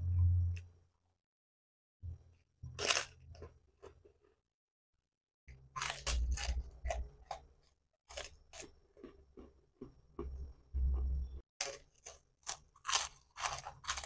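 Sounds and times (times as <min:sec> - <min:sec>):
person chewing food: 0:05.5 - 0:14.0.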